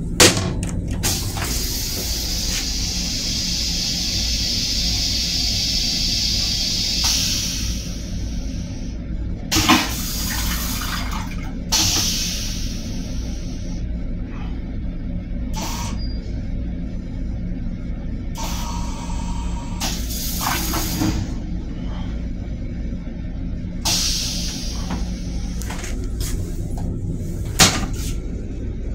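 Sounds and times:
steady low rumble: 0:00.0 - 0:28.9
toilet flushing hiss: 0:01.0 - 0:13.8, 0:18.4 - 0:21.4, 0:23.8 - 0:25.8.

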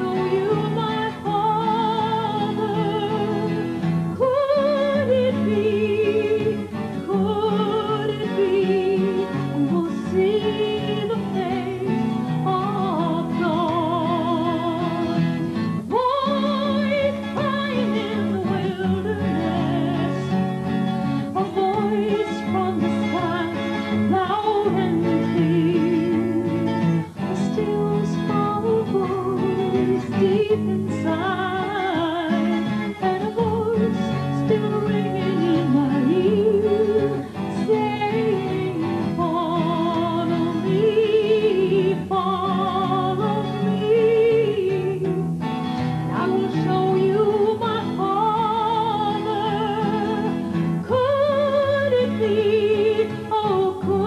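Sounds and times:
acoustic guitar: 0:00.0 - 0:54.0
woman singing: 0:00.0 - 0:54.0.

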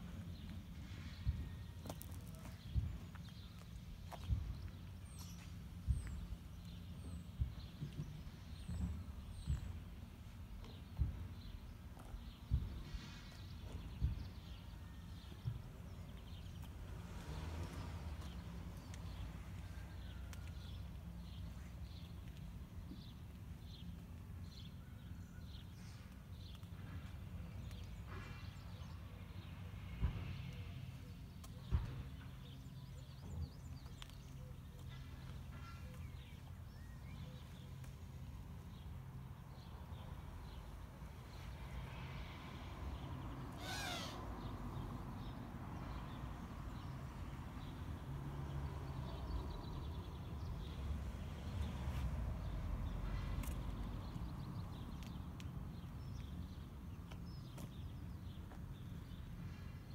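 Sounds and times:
bird warbling call: 0:43.6 - 0:44.3.

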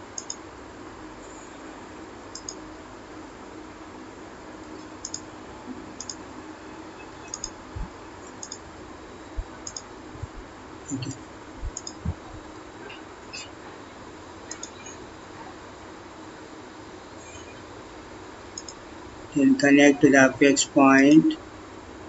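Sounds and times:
faint steady hum: 0:00.0 - 0:22.0
computer mouse button clicking: 0:00.2 - 0:00.4, 0:05.0 - 0:05.2, 0:07.3 - 0:07.6, 0:11.8 - 0:12.0
dull low thumps: 0:11.6 - 0:12.5.

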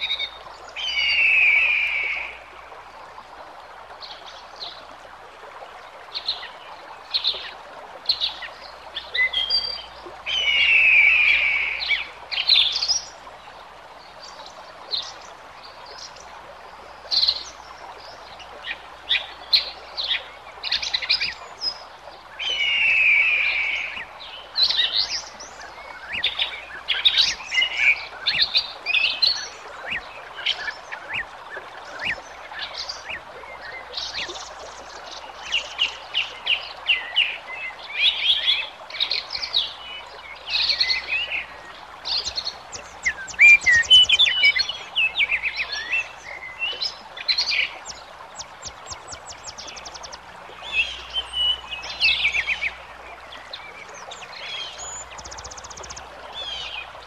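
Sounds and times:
songbirds chirping and singing: 0:17.0 - 0:57.0
bird trilled calls: 0:42.0 - 0:52.8.

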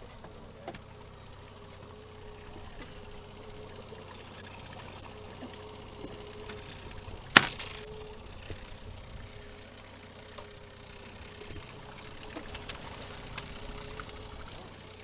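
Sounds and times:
outboard motor idling: 0:00.0 - 0:15.0.

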